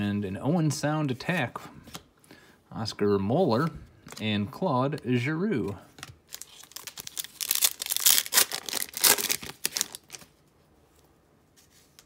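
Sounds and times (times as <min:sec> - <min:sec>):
foil wrapper tearing and crinkling: 0:06.3 - 0:10.3.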